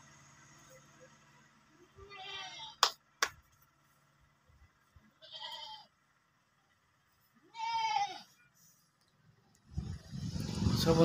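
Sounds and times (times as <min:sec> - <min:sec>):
goats bleating: 0:02.0 - 0:02.8, 0:05.2 - 0:05.9, 0:07.4 - 0:08.4.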